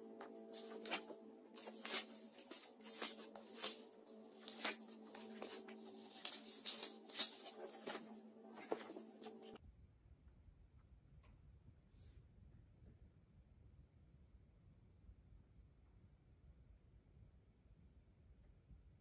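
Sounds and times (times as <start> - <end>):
paper pages rustling: 0.0 - 9.6
faint steady hum: 0.0 - 19.0.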